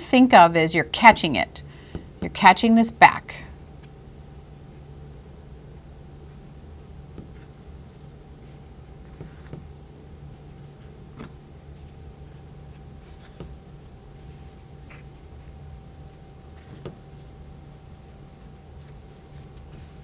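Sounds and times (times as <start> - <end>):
low room hum: 0.0 - 20.0
fabric strips rustling: 10.5 - 15.8, 16.4 - 20.0.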